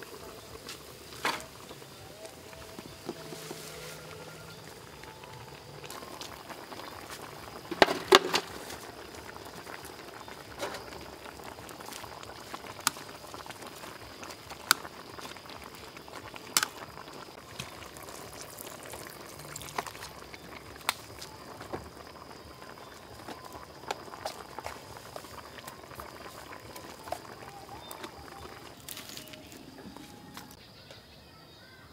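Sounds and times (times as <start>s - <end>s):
soup boiling in a metal pot: 0.0s - 30.6s.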